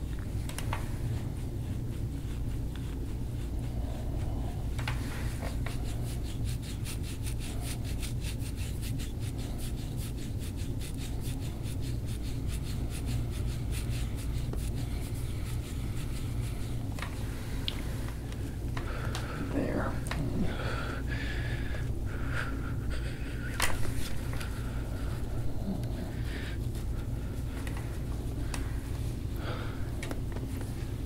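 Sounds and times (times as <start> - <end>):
fingers rubbing skin and hair: 0.0 - 20.6, 23.0 - 31.0
low steady hum: 0.0 - 31.0.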